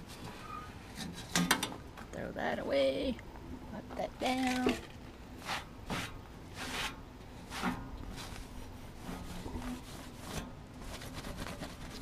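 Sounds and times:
cloth wiping metal step: 0:05.4 - 0:12.0.

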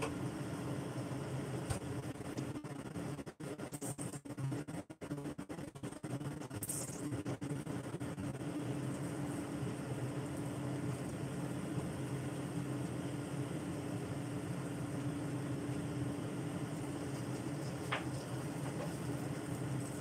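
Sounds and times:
gas stove hiss: 0:08.4 - 0:20.0.

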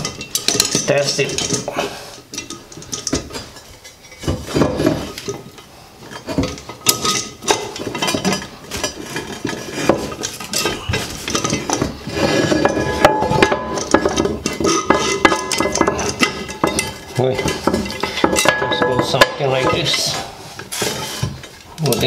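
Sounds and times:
metal clamp clinking and knocking: 0:00.0 - 0:01.7, 0:02.3 - 0:20.2.

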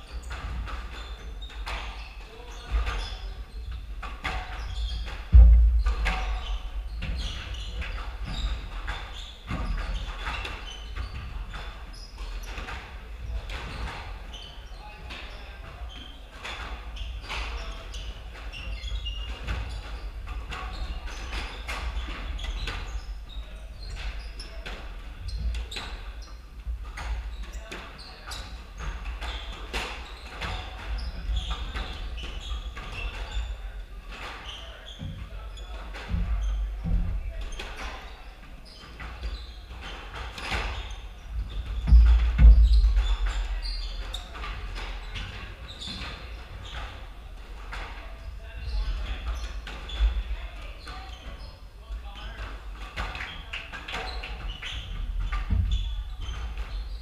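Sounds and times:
sneakers squeaking on wooden floor: 0:00.0 - 0:57.0
squash ball knocking: 0:04.1 - 0:07.9
squash ball smacking: 0:05.2 - 0:06.9
heavy thud: 0:05.3 - 0:07.1.

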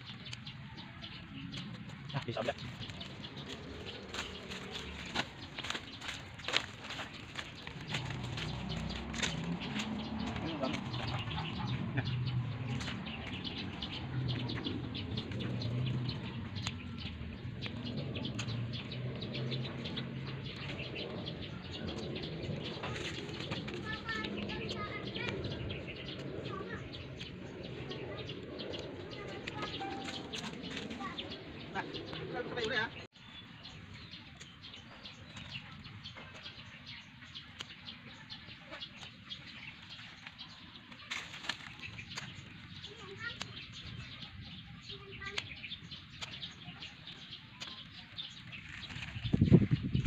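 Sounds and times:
birds chirping: 0:00.0 - 0:50.0
leaves rustling: 0:01.2 - 0:50.0
scissors snipping: 0:23.0 - 0:31.0, 0:40.2 - 0:44.0, 0:45.3 - 0:49.2.

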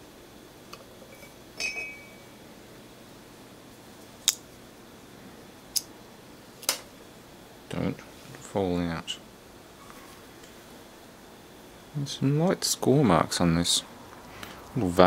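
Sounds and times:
ringing metal clink: 0:01.6 - 0:02.3.

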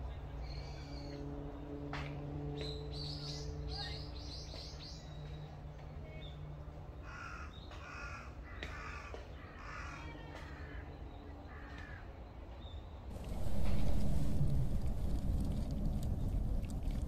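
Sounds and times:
crow cawing: 0:07.0 - 0:10.9, 0:11.5 - 0:12.1
loud low rumbling: 0:13.1 - 0:17.0.

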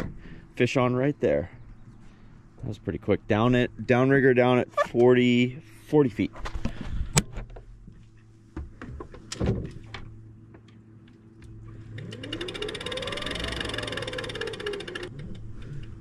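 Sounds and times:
low boat motor hum: 0:04.6 - 0:16.0
electric motor whine: 0:11.4 - 0:16.0.

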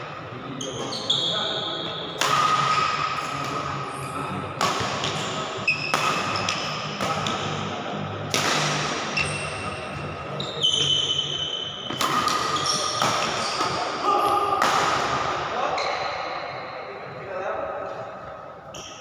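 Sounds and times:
shoes squeaking on court floor: 0:00.6 - 0:02.1, 0:05.0 - 0:06.9, 0:09.2 - 0:14.4
racket striking shuttlecock: 0:02.2 - 0:03.6, 0:04.6 - 0:05.2, 0:05.8 - 0:07.6, 0:08.3 - 0:09.4, 0:11.9 - 0:13.8.

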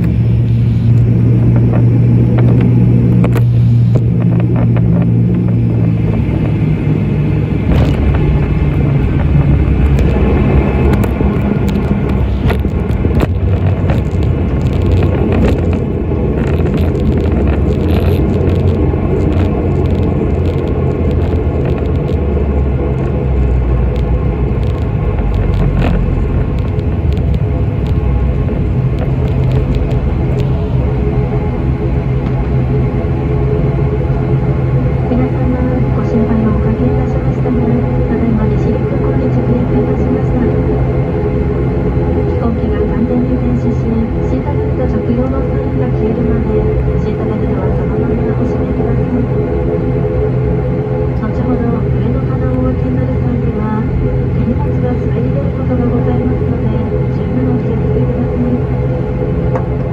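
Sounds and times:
propeller airliner cabin drone: 0:00.0 - 0:59.9
rumble of runway rollout: 0:00.0 - 0:59.9
scattered clicks: 0:09.1 - 0:22.3, 0:22.9 - 0:30.9.

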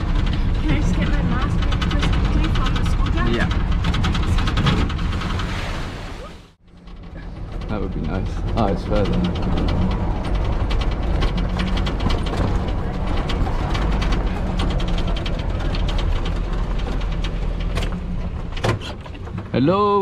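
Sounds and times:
bodywork rattling and clicking: 0:00.0 - 0:05.5, 0:06.6 - 0:19.6
engine running at low speed: 0:06.6 - 0:19.7.

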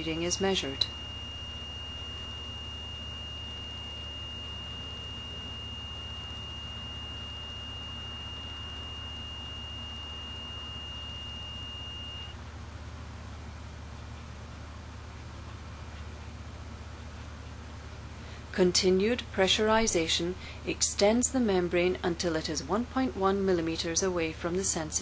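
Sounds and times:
buzzer high tone: 0:00.0 - 0:12.4
low steady hum: 0:00.0 - 0:25.0.

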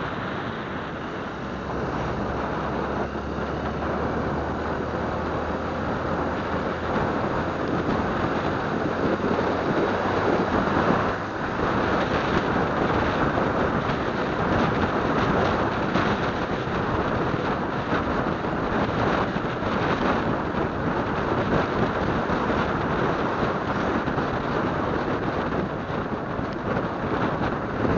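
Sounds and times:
motorcycle engine: 0:00.0 - 0:19.9
wind rushing over microphone: 0:00.0 - 0:27.9.

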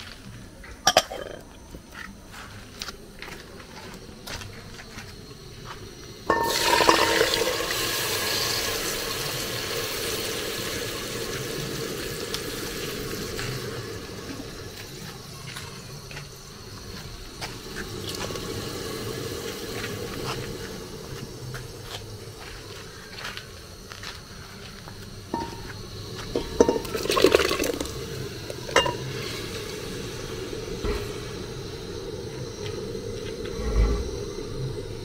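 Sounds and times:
liquid rushing into pot: 0:06.3 - 0:13.7, 0:26.3 - 0:30.1.

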